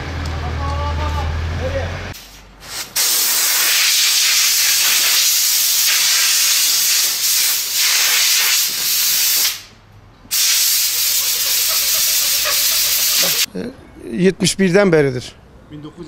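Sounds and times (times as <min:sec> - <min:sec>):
compressed air blow gun hissing: 0:02.2 - 0:09.7, 0:10.3 - 0:13.5.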